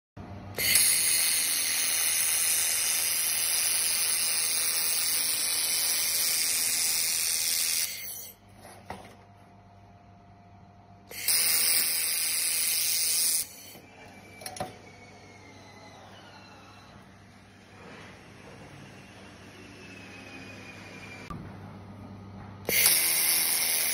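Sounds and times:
laser welder hissing: 0.6 - 8.4, 11.1 - 14.8, 22.7 - 23.9.

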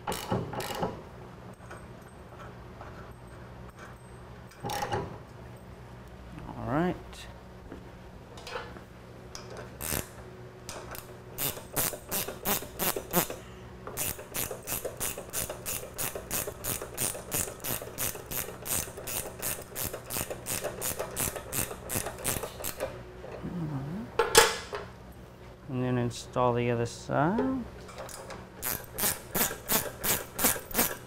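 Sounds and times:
ratchet wrench clicking: 9.8 - 10.1, 11.4 - 13.4, 14.0 - 22.9, 28.6 - 31.0.

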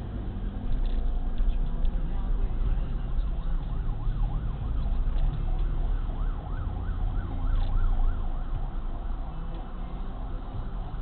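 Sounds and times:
low road rumble: 0.0 - 11.0.

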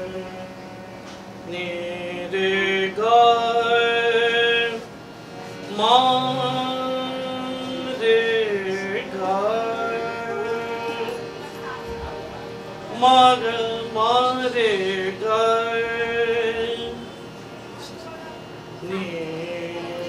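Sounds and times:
man singing classical vocal: 0.0 - 0.6, 1.4 - 4.9, 5.6 - 11.5, 12.8 - 17.2, 18.8 - 20.0
harmonium accompaniment: 0.0 - 20.0.

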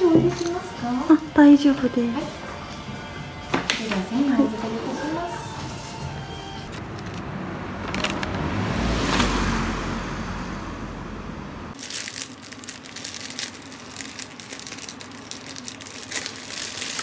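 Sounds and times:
car passing by: 6.7 - 11.8
plastic bag crinkling: 11.8 - 17.0.

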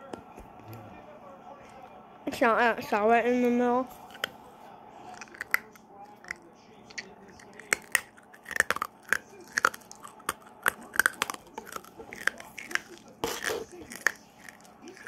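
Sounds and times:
hard candy crunching: 5.0 - 15.0
wet mouth clicks: 5.1 - 15.0.

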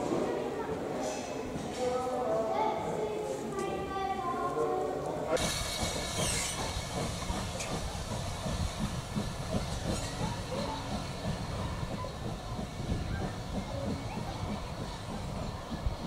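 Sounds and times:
steam train passing: 5.1 - 16.0
hiss of steam: 5.4 - 16.0.

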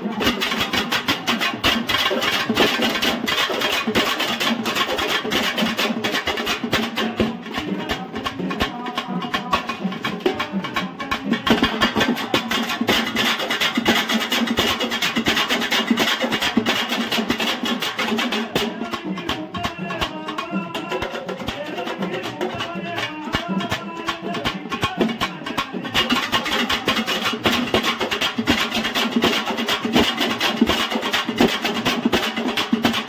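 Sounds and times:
drums beaten with sticks: 0.0 - 33.0
man singing over microphone: 7.2 - 12.0, 18.5 - 27.0.

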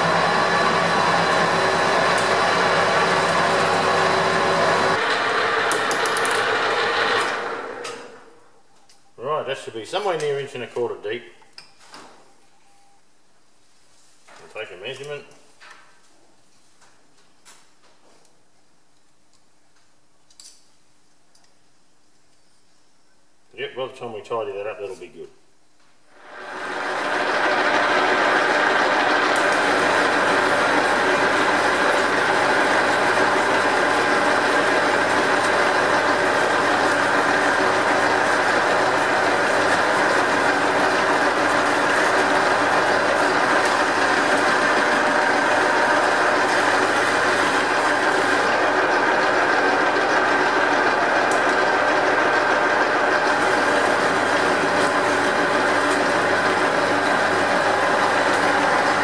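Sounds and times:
metal lathe whirring: 0.0 - 8.2, 26.2 - 59.0.

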